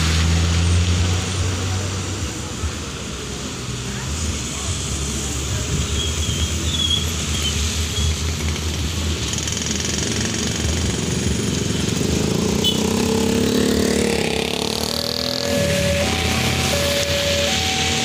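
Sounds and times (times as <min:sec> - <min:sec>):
traffic on wet road: 0:00.0 - 0:18.0
car passing: 0:08.8 - 0:18.0
motorcycle passing: 0:09.4 - 0:18.0.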